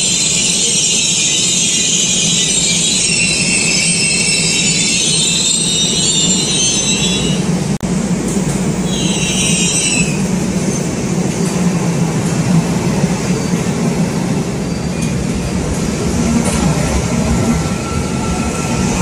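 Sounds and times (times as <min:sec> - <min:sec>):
subway train rumble: 0:00.0 - 0:19.0
high-pitched wheel squeal: 0:00.1 - 0:07.4, 0:08.9 - 0:10.2.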